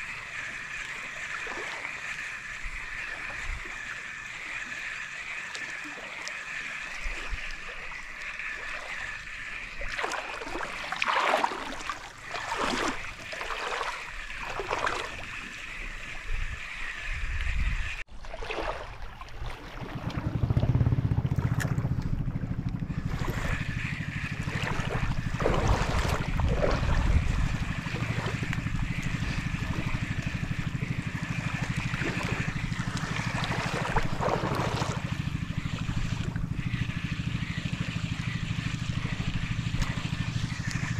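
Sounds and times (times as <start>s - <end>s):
seawater sloshing around feet: 0.0s - 40.9s
wind rumbling on microphone: 12.1s - 18.0s, 18.9s - 40.9s.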